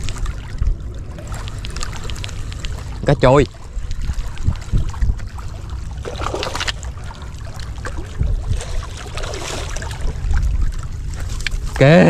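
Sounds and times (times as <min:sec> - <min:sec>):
fish splashing in water: 0:00.0 - 0:11.7
steady low rumble: 0:00.0 - 0:12.0.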